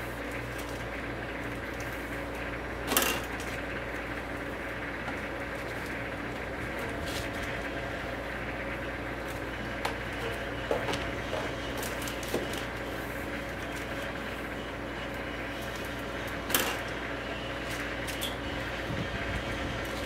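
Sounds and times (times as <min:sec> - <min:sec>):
wrapping machine humming: 0:00.0 - 0:20.0
plastic film clicks and crinkles: 0:11.7 - 0:14.2.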